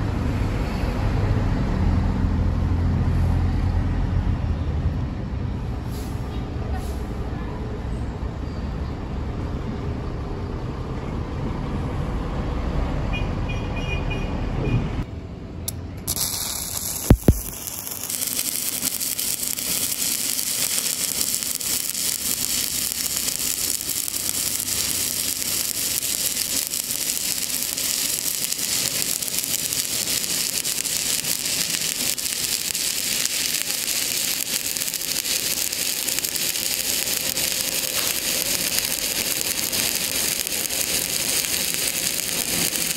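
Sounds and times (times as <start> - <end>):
welding arc crackling sizzle: 15.7 - 42.9.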